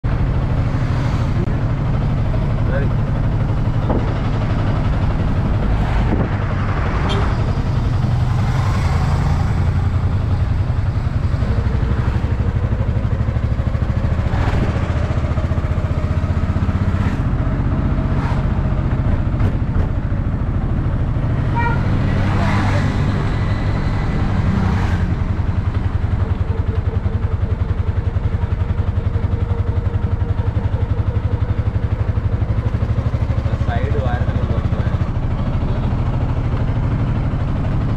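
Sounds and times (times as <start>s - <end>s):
auto rickshaw engine running: 0.0s - 37.9s
body knocks and rattles: 3.8s - 4.3s.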